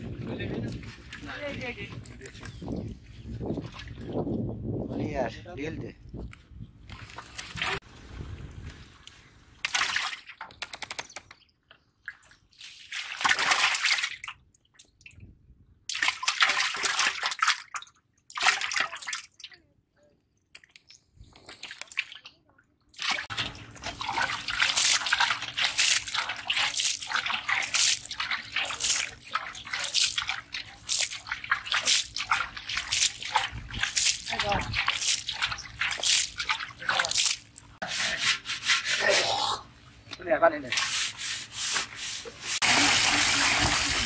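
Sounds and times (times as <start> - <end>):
water sloshing: 0.0 - 4.4, 6.8 - 10.6, 20.5 - 37.9
fish flapping and splashing: 23.0 - 37.8.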